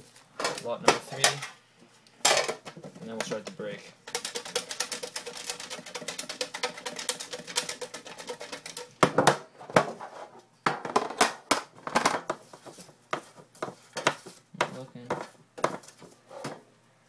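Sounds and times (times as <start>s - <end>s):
tin of paper slips rattling: 4.1s - 9.0s.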